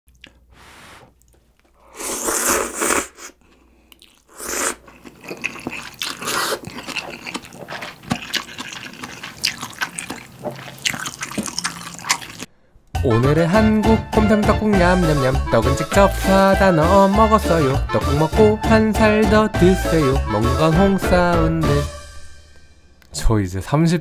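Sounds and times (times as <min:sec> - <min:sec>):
wet chewing: 0:00.1 - 0:00.5, 0:01.1 - 0:12.5
person slurping noodles: 0:00.2 - 0:01.2, 0:01.8 - 0:03.4, 0:04.0 - 0:12.5.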